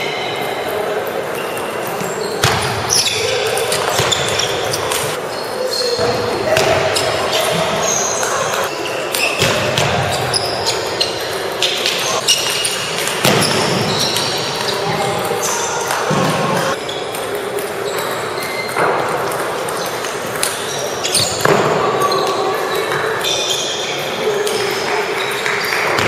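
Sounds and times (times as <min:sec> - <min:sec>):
crowd chatter: 0:00.0 - 0:26.0.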